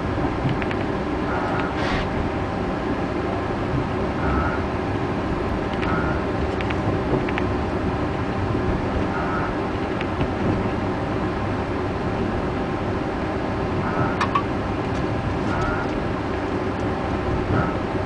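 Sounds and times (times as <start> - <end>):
railcar engine and wheel rumble: 0.0 - 18.0
run of clicks: 0.4 - 0.9, 5.7 - 7.5.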